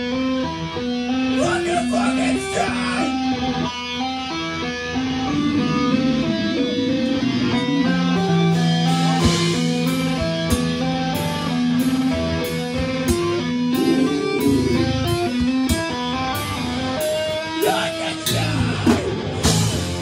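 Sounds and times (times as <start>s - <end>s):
bass and drums: 1.4s - 20.0s
electric guitar note runs: 3.0s - 17.6s.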